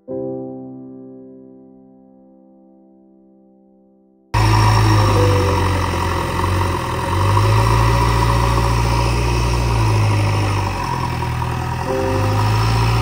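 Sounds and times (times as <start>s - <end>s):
diesel engine running low drone: 4.4s - 13.0s.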